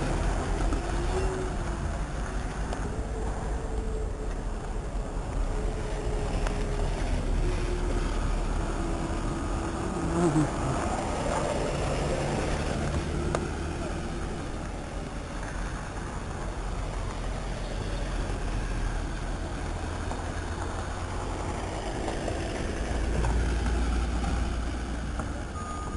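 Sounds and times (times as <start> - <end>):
vehicle engines passing: 0.0 - 25.9.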